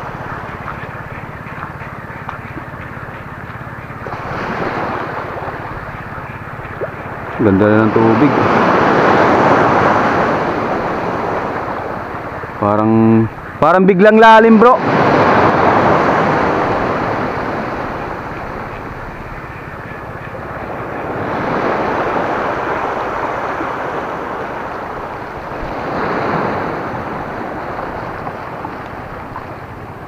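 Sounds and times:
waves washing over stony shore: 3.4s - 12.7s, 14.5s - 19.1s, 20.4s - 30.0s.

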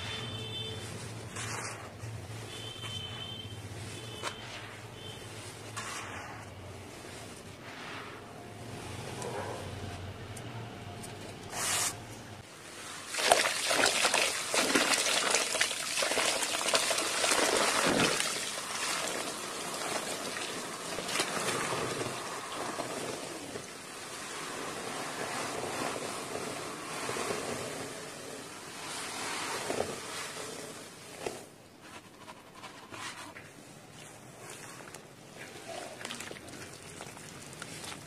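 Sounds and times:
dirt powder crackling hiss in water: 12.6s - 31.5s, 34.0s - 38.0s.

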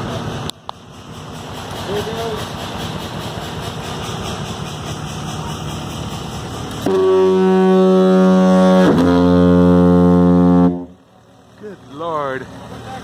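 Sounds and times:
deep foghorn blast: 6.8s - 11.0s.

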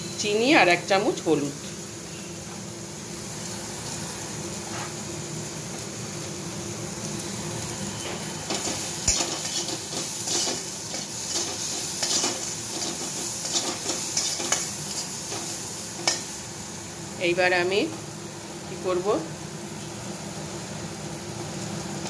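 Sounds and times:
food sizzling: 0.0s - 22.0s
metal spatula scraping a pan: 8.1s - 16.2s.

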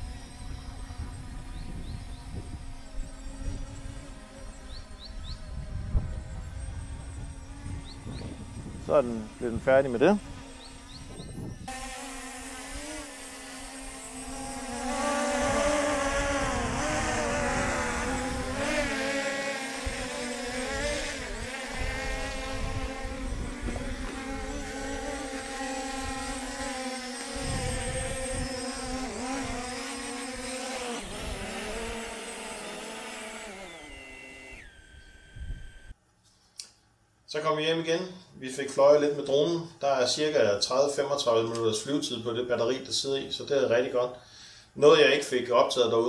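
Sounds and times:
wind buffeting microphone: 0.0s - 11.8s, 14.5s - 19.0s, 19.8s - 26.6s, 27.3s - 32.2s
drone propellers whining: 0.0s - 36.0s.

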